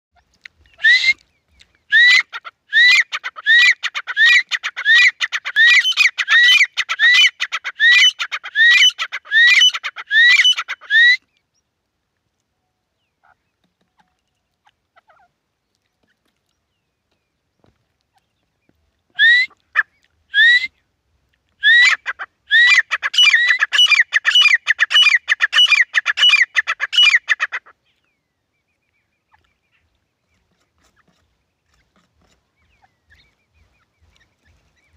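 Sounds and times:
francolins calling: 0:00.2 - 0:11.6, 0:21.6 - 0:34.9.

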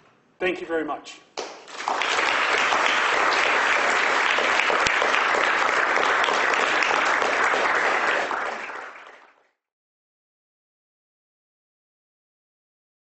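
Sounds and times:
audience applauding: 0:01.4 - 0:09.6.

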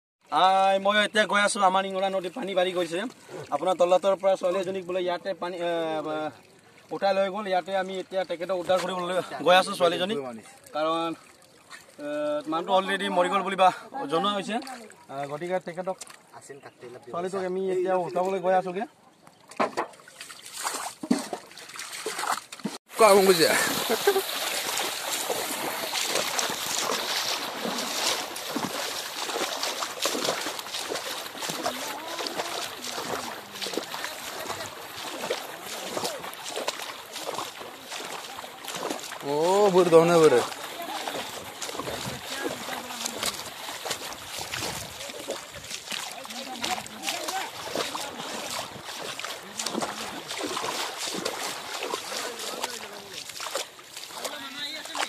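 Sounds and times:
wading through shallow water: 0:00.3 - 0:55.0
men calling: 0:23.0 - 0:44.2.

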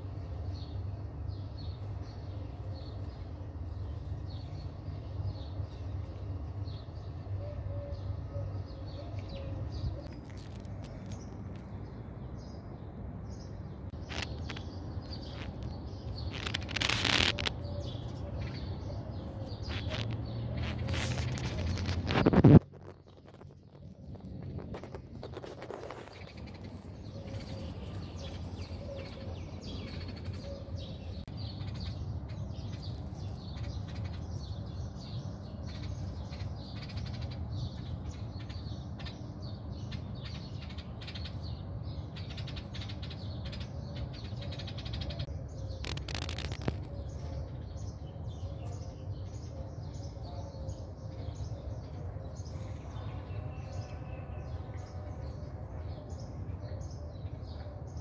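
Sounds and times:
steady low rumble: 0:00.0 - 0:39.1
small birds chirping: 0:00.0 - 0:58.0.

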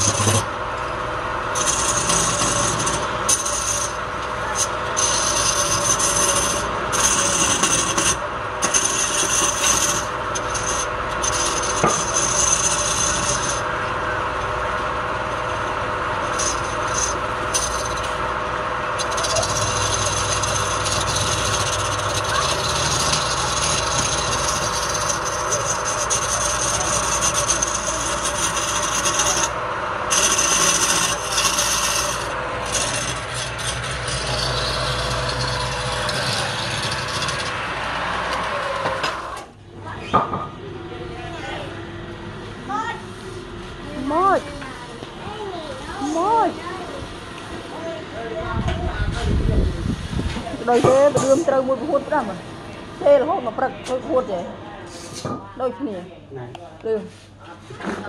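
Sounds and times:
gouge scraping wood: 0:00.0 - 0:00.6, 0:01.5 - 0:38.4
wood lathe humming: 0:00.0 - 0:39.6, 0:43.4 - 0:48.3.

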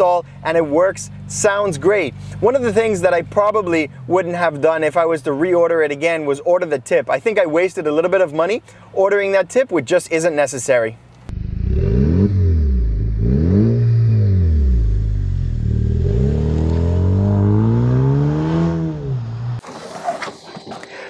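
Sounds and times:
car engine revving: 0:11.3 - 0:19.6.

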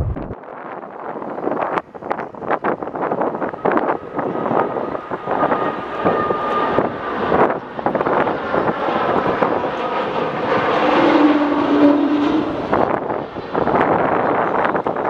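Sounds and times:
steady high whine: 0:00.0 - 0:00.4
jet airliner rumble: 0:00.0 - 0:01.2, 0:02.8 - 0:15.0.

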